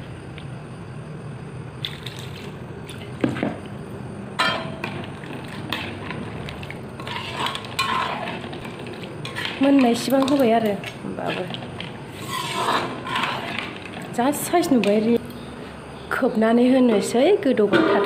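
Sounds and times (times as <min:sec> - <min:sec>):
ladle stirring gravy: 0:04.8 - 0:15.1.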